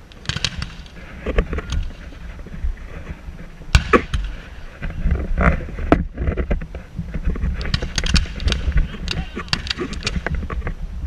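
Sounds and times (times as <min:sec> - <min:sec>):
cannon firing: 0:00.2 - 0:00.9, 0:03.7 - 0:04.4.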